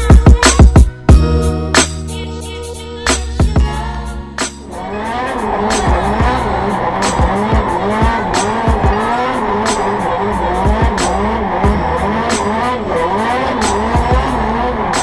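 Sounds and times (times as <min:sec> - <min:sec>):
car engine revving: 0:03.2 - 0:15.0
tyres squealing: 0:04.7 - 0:15.0.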